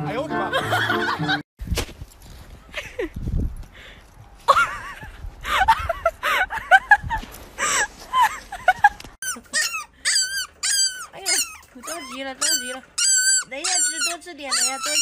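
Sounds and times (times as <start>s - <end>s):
dog whining and yelping: 9.2s - 15.0s
puppy squeaks: 9.2s - 15.0s.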